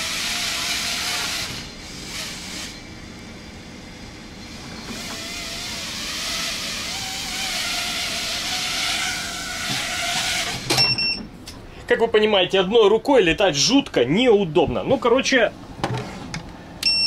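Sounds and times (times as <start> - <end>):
quadcopter propellers whirring: 4.9 - 10.6.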